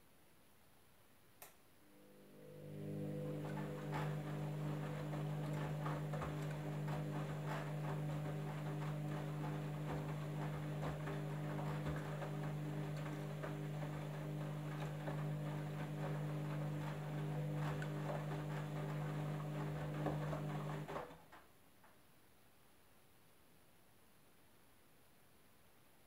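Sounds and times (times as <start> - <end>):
washing machine motor hum: 1.8 - 21.4.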